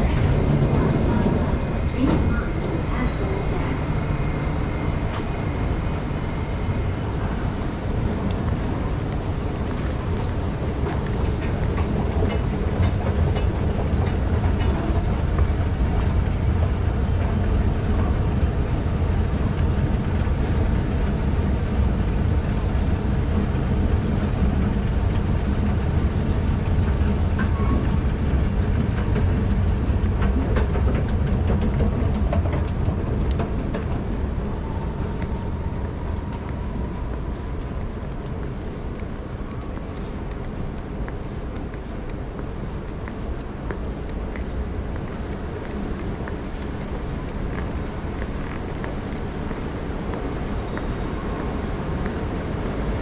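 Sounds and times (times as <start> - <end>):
escalator rumble: 0.0 - 39.6.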